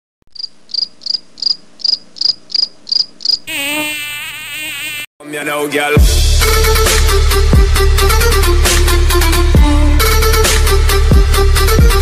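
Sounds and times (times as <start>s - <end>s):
cricket chirping: 0.4s - 3.7s.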